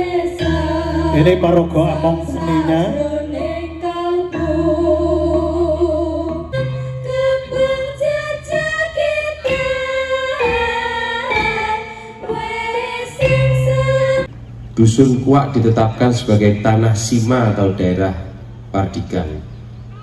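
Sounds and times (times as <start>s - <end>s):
person singing long held notes: 0.0s - 14.3s.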